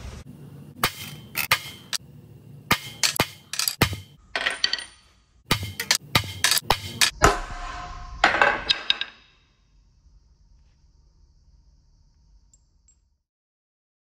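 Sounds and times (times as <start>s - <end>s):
metal tools knocking on metal: 2.7s - 7.2s.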